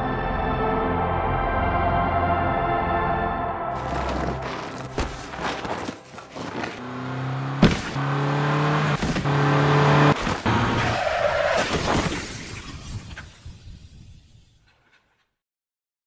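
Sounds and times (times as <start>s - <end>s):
car skidding: 3.8s - 13.4s.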